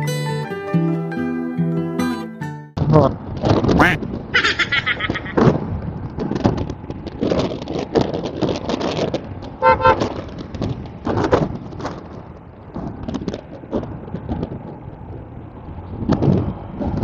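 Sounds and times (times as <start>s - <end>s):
wind and road noise: 2.8s - 17.0s
vehicle horn honking: 9.6s - 10.1s.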